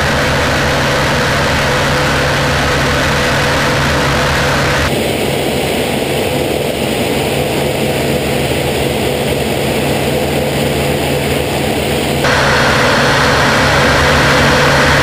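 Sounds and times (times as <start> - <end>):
radial engine and propeller drone: 0.0 - 15.0
rushing air: 0.0 - 15.0.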